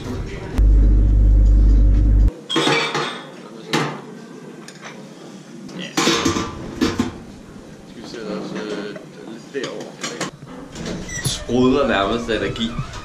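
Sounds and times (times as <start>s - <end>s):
loud low rumble: 0.5s - 2.3s
plates and cutlery clattering: 2.5s - 4.0s, 6.0s - 7.2s.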